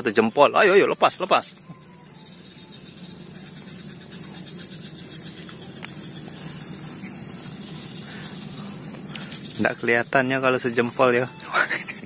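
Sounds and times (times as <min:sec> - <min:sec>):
high-pitched hiss: 0:00.0 - 0:12.0
low even hum: 0:01.6 - 0:12.0
faint ticks: 0:02.9 - 0:09.6, 0:11.1 - 0:12.0.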